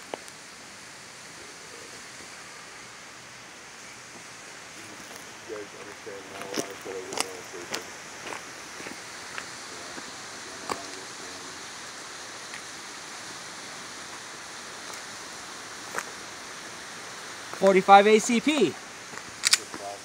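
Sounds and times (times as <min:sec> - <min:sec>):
outdoor background hiss: 0:00.0 - 0:20.0
footsteps on gravel and leaves: 0:06.3 - 0:11.1.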